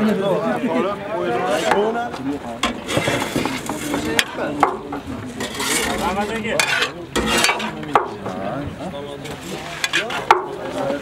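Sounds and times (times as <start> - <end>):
metal utensil scraping a cauldron: 2.6 - 4.6, 5.3 - 7.8, 9.2 - 10.8.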